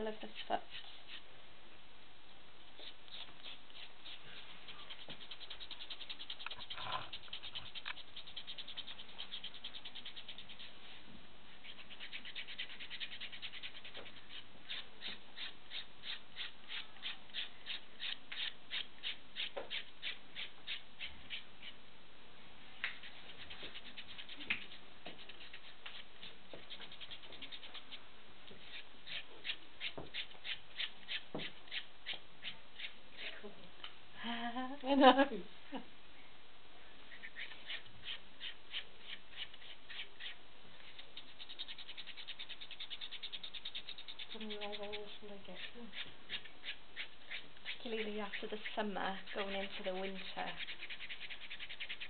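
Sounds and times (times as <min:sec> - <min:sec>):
foot rasp scraping skin: 0:02.8 - 0:10.7.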